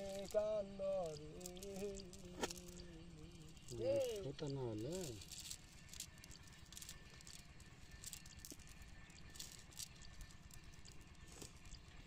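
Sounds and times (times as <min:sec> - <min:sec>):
net rustling: 0:00.0 - 0:07.3.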